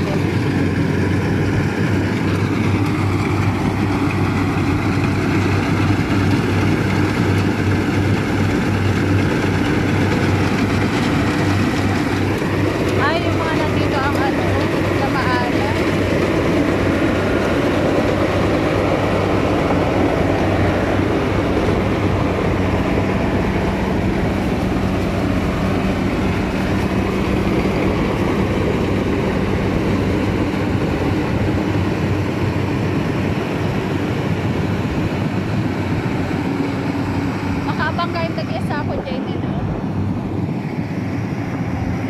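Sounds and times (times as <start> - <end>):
combine harvester engine droning: 0.0 - 42.0.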